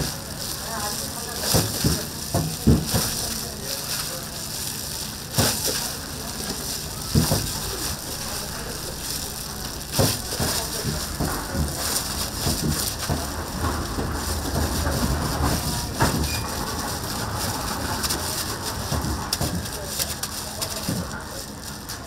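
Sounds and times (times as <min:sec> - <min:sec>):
meat sizzling on a grill: 0:00.0 - 0:22.0.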